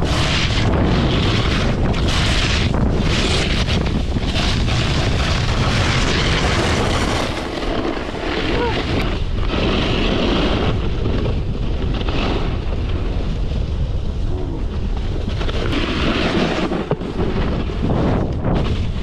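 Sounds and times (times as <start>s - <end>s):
snowboard scraping on snow: 0.0s - 19.0s
wind buffeting microphone: 0.0s - 19.0s.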